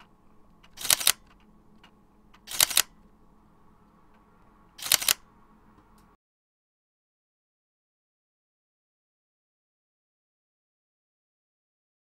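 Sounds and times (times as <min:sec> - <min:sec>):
camera shutter double click: 0:00.8 - 0:01.3, 0:02.5 - 0:02.9, 0:04.8 - 0:05.2.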